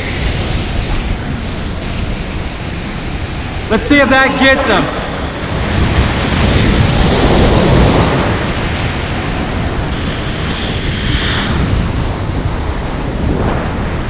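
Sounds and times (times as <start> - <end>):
surf breaking over rocks: 0.0 - 14.0
wind buffeting microphone: 0.0 - 14.0.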